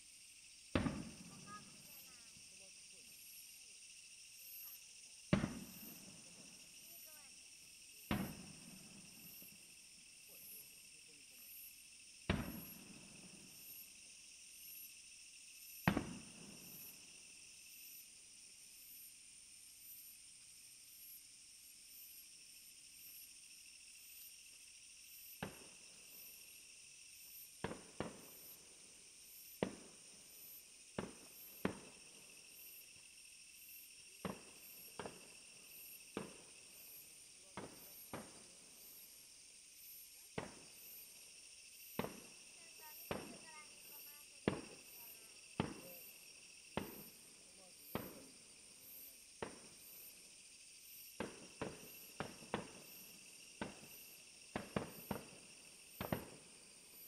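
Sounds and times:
insects chirping: 0.0s - 57.0s
fireworks bangs: 0.7s - 2.3s, 5.3s - 7.1s, 8.0s - 9.4s, 12.3s - 13.7s, 15.8s - 16.9s, 27.6s - 28.6s, 29.6s - 32.2s, 34.2s - 38.8s, 40.4s - 41.0s, 42.0s - 46.1s, 46.7s - 47.2s, 47.8s - 48.3s, 49.4s - 50.0s, 51.2s - 56.4s.

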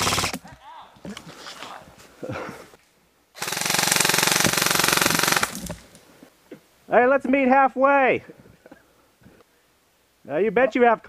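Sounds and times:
airsoft rifle full-auto burst: 0.0s - 0.4s, 3.4s - 5.8s.

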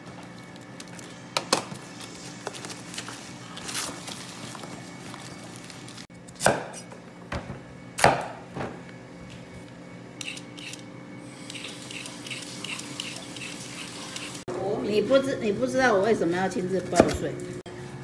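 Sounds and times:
cleaver chopping on wooden board: 6.4s - 6.8s
peeler scraping radish: 11.4s - 14.4s.

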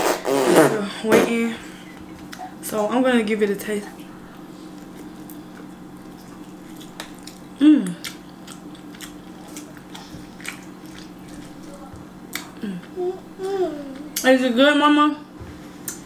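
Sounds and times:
person chewing food: 4.3s - 14.2s
person humming mm: 7.6s - 8.1s, 12.6s - 14.2s.

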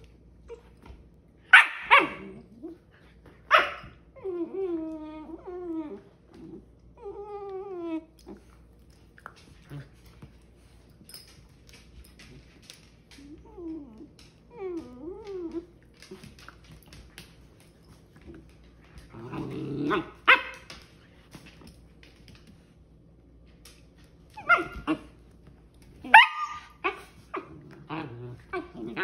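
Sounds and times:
puppies play growling: 1.8s - 29.0s
puppy yipping: 26.0s - 27.1s.

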